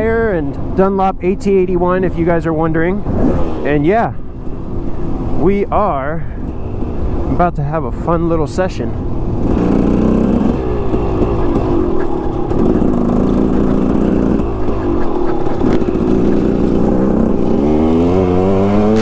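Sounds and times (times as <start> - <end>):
wind rumble on microphone: 0.0 - 19.0
motorcycle engine revving: 9.2 - 19.0.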